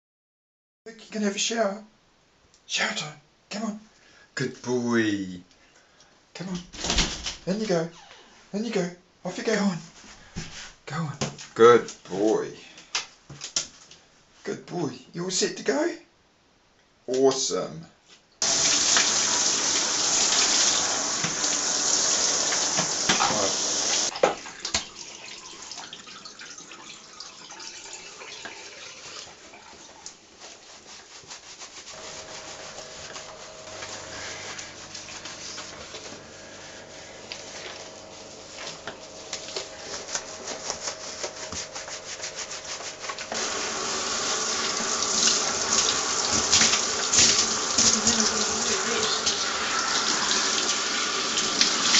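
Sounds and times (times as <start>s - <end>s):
shower head spraying water: 18.4s - 25.0s, 31.0s - 51.9s
hands rubbing wet fur: 30.0s - 48.9s.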